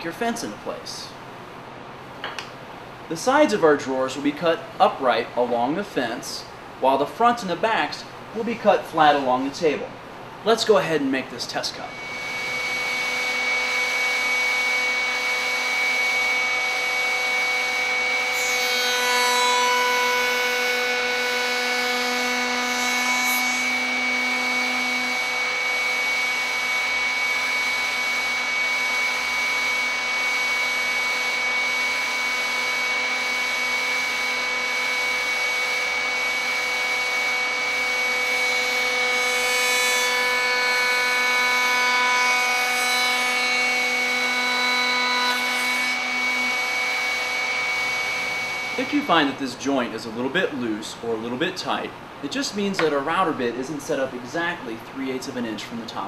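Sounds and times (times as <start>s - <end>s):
router whining cutting wood: 11.9s - 49.4s.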